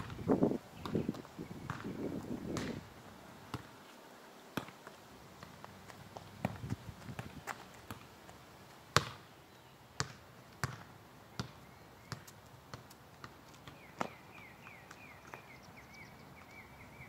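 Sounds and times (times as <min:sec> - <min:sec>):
ball kicked on pavement: 0:00.0 - 0:02.9, 0:03.5 - 0:03.7, 0:04.5 - 0:09.3, 0:10.0 - 0:15.5.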